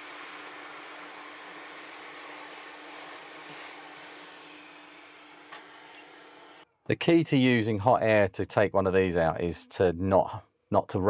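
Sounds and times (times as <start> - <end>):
hot air hissing: 0.0 - 6.6.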